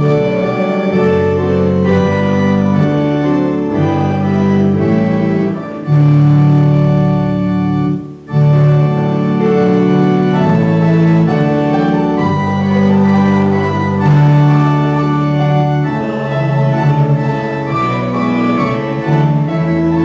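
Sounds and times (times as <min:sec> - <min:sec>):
church organ chords: 0:00.0 - 0:20.0.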